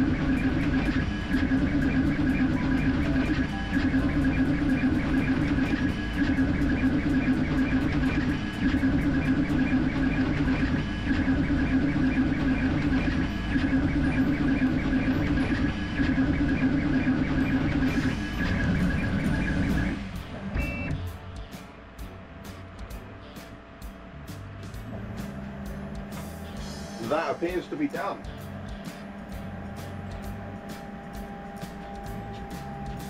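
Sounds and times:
printer ticking: 0.0s - 21.0s
three d printer motors humming: 0.0s - 21.3s, 24.7s - 33.0s.

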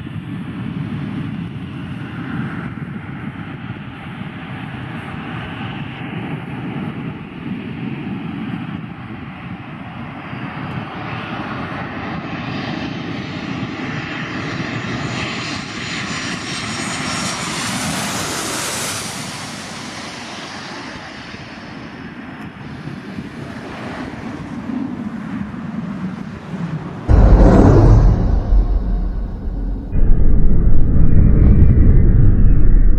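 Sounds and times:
jet engines drone: 26.9s - 32.9s.

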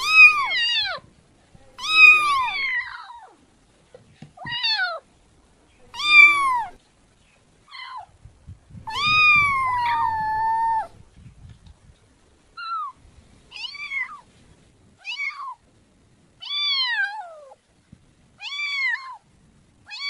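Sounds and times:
kitten meowing: 0.0s - 1.0s, 1.8s - 3.3s, 5.9s - 6.8s, 8.9s - 10.9s, 12.6s - 14.2s, 15.0s - 15.6s, 18.4s - 19.2s.

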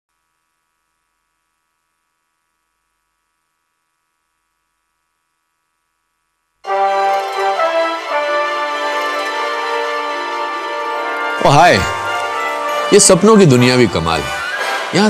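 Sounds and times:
faint steady hum: 0.1s - 7.2s
music: 6.6s - 15.0s.

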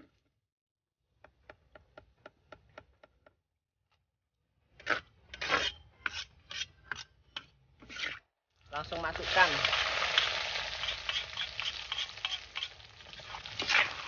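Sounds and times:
spatula scraping a wok: 4.7s - 8.3s, 10.1s - 14.0s.

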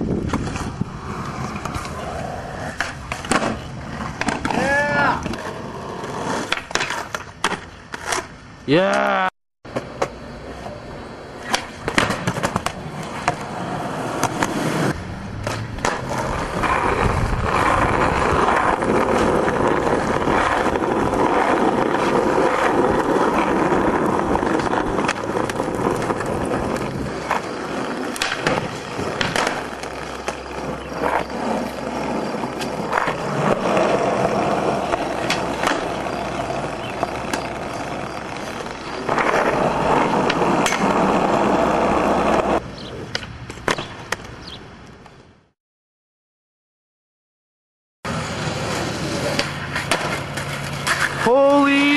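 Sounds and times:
skateboard wheels rolling on concrete: 0.0s - 45.6s, 48.1s - 51.9s
skateboard clacks: 2.7s - 8.3s, 11.4s - 13.6s, 15.4s - 44.4s, 48.7s - 51.9s.

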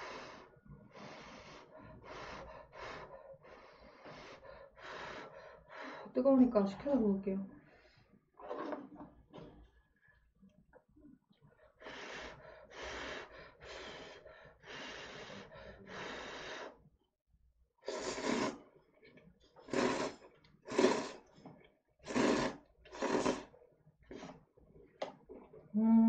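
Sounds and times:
person blowing on noodles: 11.8s - 16.8s, 17.8s - 18.6s, 19.6s - 21.3s, 22.0s - 23.5s
loud slurping of noodles: 17.8s - 18.7s, 19.6s - 21.3s, 22.0s - 24.4s.

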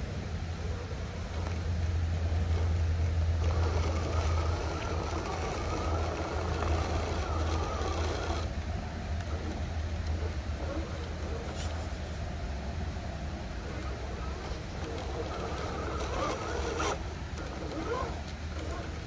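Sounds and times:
steady low rumble: 0.0s - 19.0s
electric motor whining: 3.4s - 8.5s, 13.6s - 19.0s.

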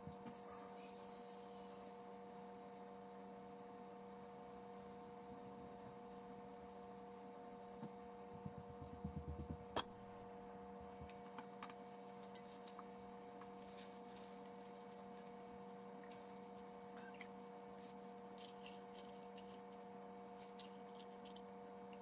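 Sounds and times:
steady electrical hum: 0.0s - 22.0s.

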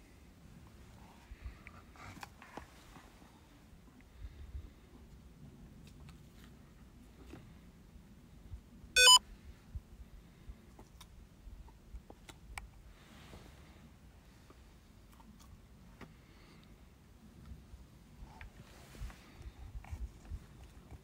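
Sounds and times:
short electronic beep: 9.0s - 9.2s.

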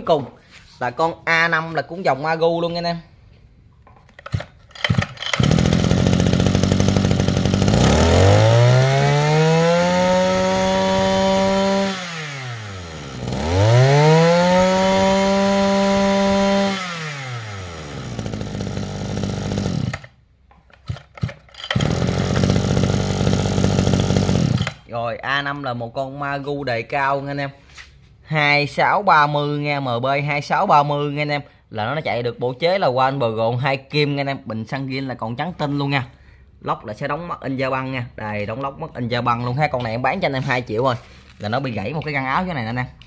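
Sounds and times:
brush cutter engine revving: 4.3s - 20.2s, 20.8s - 24.9s.

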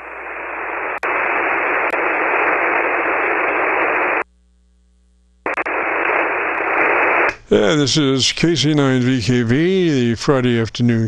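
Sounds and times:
radio click: 0.0s - 4.3s, 5.4s - 7.5s
radio static hiss: 0.0s - 11.0s.

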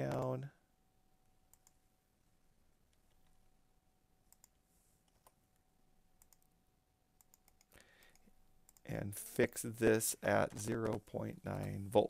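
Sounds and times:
faint computer mouse clicks: 4.3s - 5.4s, 7.2s - 8.8s.

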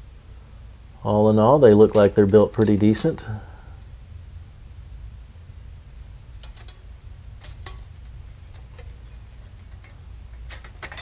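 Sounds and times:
steady low hum: 0.0s - 11.0s
metal panels clicking and tapping: 1.8s - 3.1s, 6.3s - 11.0s.

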